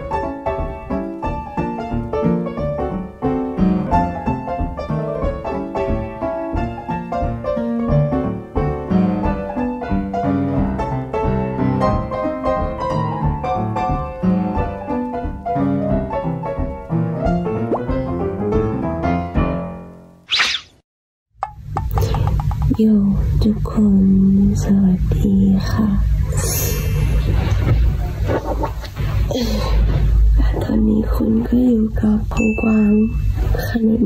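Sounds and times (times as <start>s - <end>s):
piano background music: 0.0s - 20.2s.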